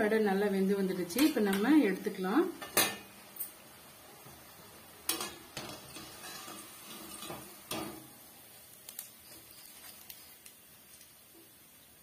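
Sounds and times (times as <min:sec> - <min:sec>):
steel utensils clinking and scraping: 0:05.1 - 0:07.9.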